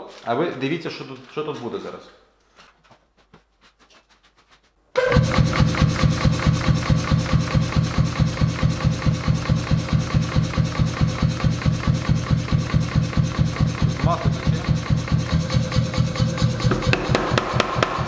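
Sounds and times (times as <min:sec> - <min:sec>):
steady tone: 0:05.0 - 0:11.5
forging hammer starting: 0:05.0 - 0:18.0
compressor piston pumping: 0:09.2 - 0:18.0.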